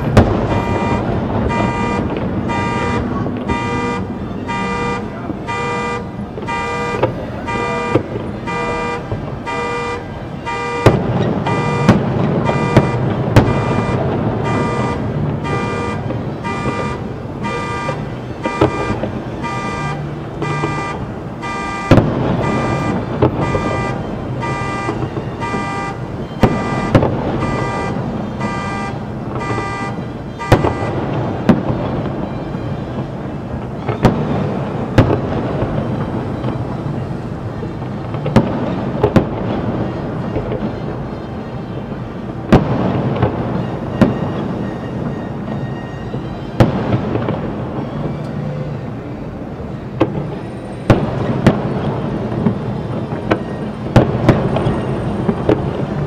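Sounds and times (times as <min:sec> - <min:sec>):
fireworks banging: 0:00.0 - 0:56.0
car alarm pulsed tone: 0:00.1 - 0:31.1, 0:43.3 - 0:47.0.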